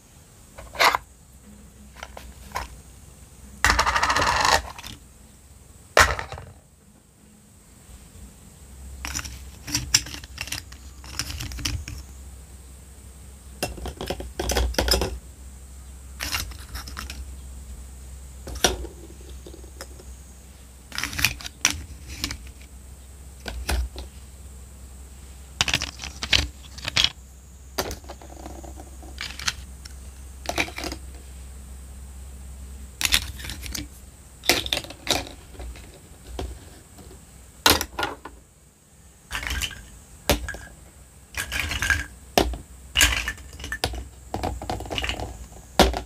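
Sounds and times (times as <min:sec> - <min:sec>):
plastic toy pieces clattering: 0:03.7 - 0:05.0, 0:09.1 - 0:12.0, 0:16.2 - 0:17.2, 0:20.9 - 0:22.6, 0:25.6 - 0:27.1, 0:27.8 - 0:29.6, 0:30.5 - 0:31.0, 0:33.0 - 0:36.6, 0:39.3 - 0:40.7, 0:41.4 - 0:46.0.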